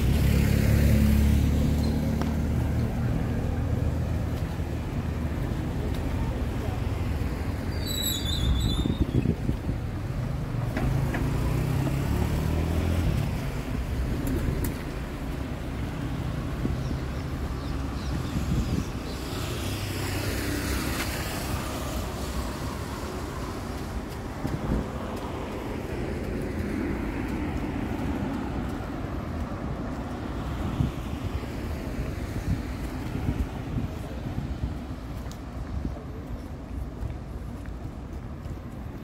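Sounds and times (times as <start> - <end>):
vehicle swishing past: 0.0 - 3.3, 10.8 - 14.6.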